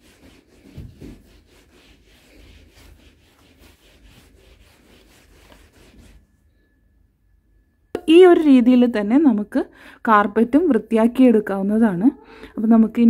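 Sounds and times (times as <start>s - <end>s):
cloth swishing on fabric mattress: 0.0s - 6.2s.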